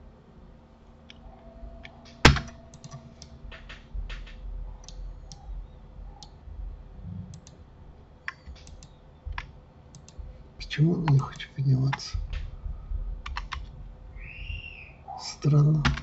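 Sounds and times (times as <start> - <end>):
keyboard and mouse clicking: 1.8 - 5.5, 7.3 - 7.6, 8.2 - 10.2, 11.0 - 12.5, 13.2 - 13.7, 15.7 - 16.0.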